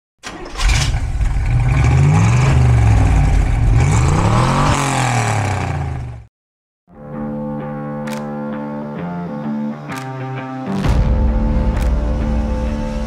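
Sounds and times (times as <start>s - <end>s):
car engine revving: 0.3s - 6.3s.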